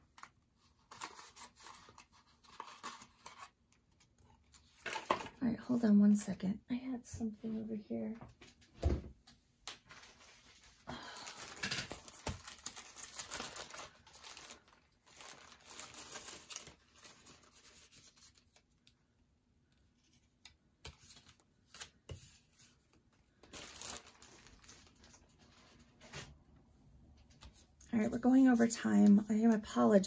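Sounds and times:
plastic bag crinkling: 9.8s - 18.7s, 23.4s - 26.1s.

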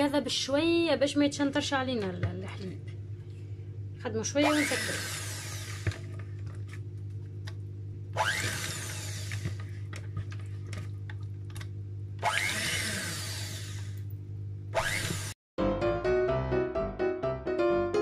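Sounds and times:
electric hand mixer running: 4.4s - 6.2s, 8.2s - 9.8s, 12.2s - 14.0s, 14.8s - 15.4s.

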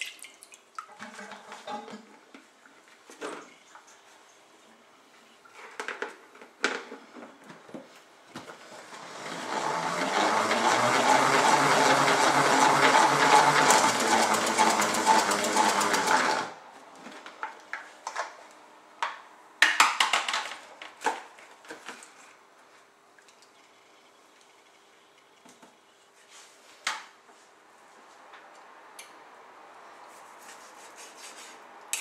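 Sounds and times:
salad spinner whirring: 8.8s - 16.6s.

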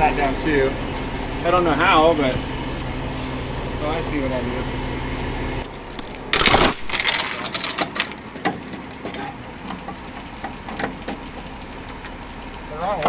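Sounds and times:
chain rattling on steel deck: 5.9s - 8.2s
metal clinks: 5.9s - 8.2s.

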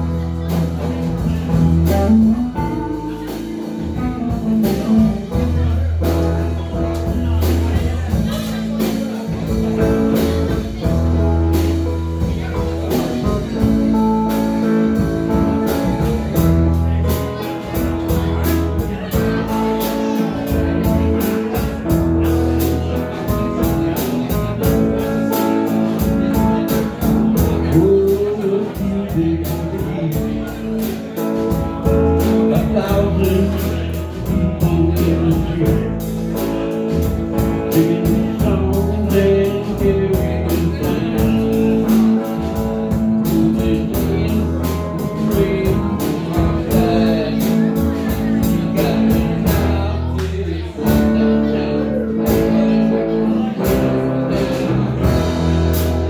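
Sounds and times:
live blues-rock band playing: 0.0s - 56.0s.

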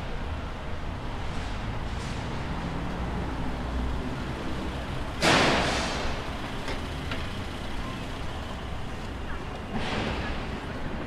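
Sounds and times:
street traffic rumbling: 0.0s - 11.0s
loud hiss of air: 5.2s - 6.2s.

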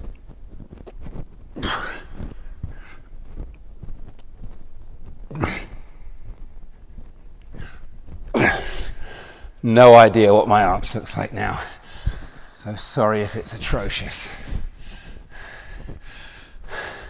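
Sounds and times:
man breathing heavily: 1.5s - 4.5s, 5.1s - 9.6s, 11.6s - 17.0s.

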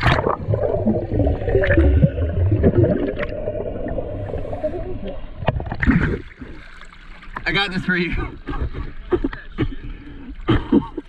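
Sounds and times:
underwater bubbling and gurgling: 0.0s - 7.5s, 8.1s - 11.0s
low rumble of churning water: 0.0s - 11.0s.

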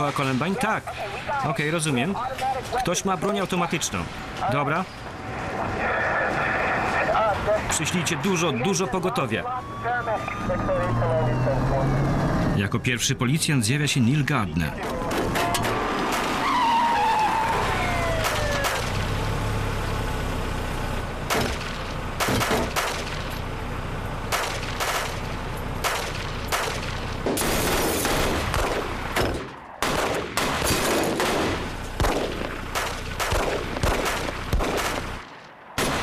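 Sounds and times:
police siren winding down: 8.4s - 12.9s, 16.4s - 19.8s
gunshots: 18.1s - 19.1s, 21.3s - 23.3s, 24.3s - 36.0s.

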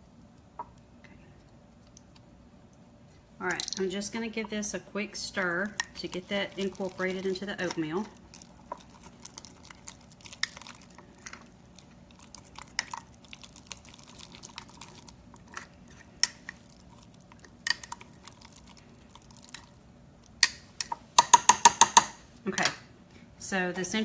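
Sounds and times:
wet squishing of oatmeal: 4.4s - 20.6s.

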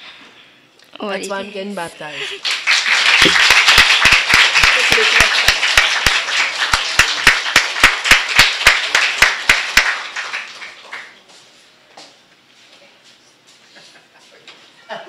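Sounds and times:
congregation applauding: 2.3s - 11.4s
person clapping close by: 2.4s - 11.2s.

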